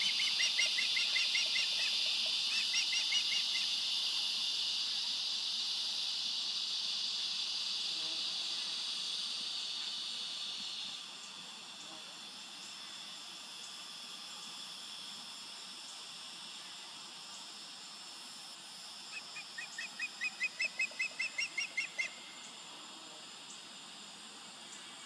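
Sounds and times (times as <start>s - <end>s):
osprey high whistled chirps: 0.0s - 3.7s, 19.1s - 22.2s.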